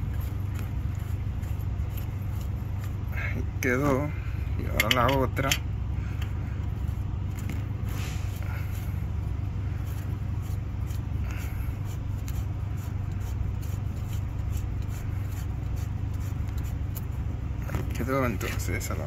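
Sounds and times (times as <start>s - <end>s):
steady low hum: 0.0s - 19.0s
hose fittings scraping and clicking: 4.6s - 5.6s.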